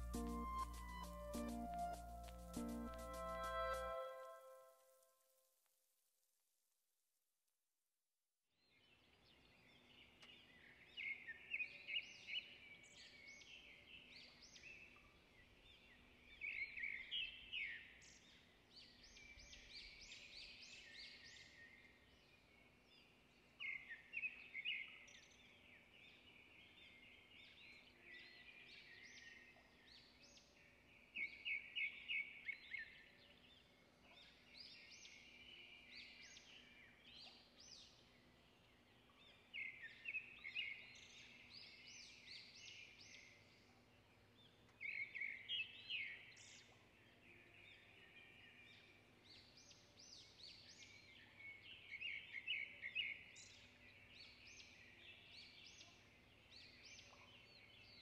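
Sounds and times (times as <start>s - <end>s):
birds chirping: 0.0s - 4.6s.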